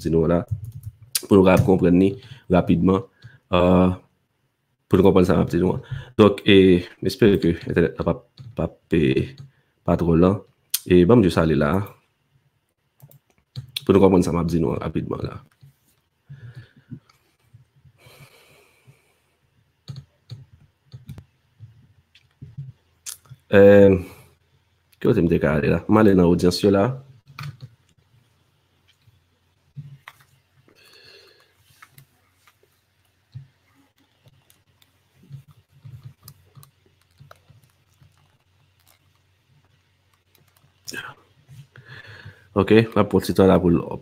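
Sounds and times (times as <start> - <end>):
computer mouse and keyboard clicks: 19.8 - 23.4, 27.2 - 28.0, 31.7 - 41.0.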